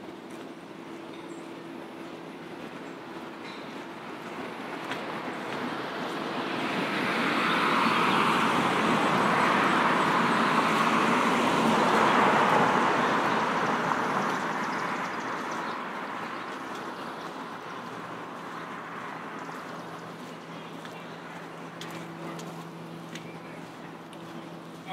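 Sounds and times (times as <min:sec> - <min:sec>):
vehicle passing by: 0:04.4 - 0:24.9.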